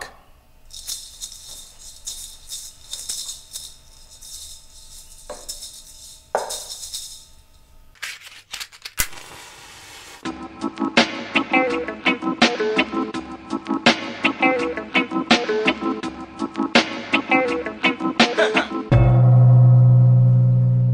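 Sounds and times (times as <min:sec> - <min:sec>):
maracas shaken: 0:00.7 - 0:07.5.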